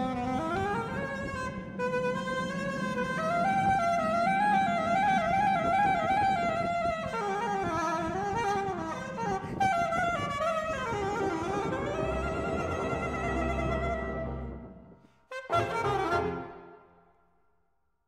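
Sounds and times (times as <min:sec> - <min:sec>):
soft low accompaniment: 0:11.3 - 0:16.9
slow gliding instrumental melody: 0:11.8 - 0:17.0.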